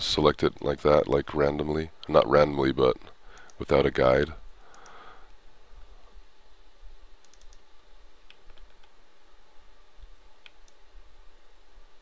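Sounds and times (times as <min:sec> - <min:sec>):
faint low hum: 0:00.0 - 0:12.0
computer mouse and keyboard clicks: 0:07.2 - 0:07.6, 0:08.3 - 0:09.0.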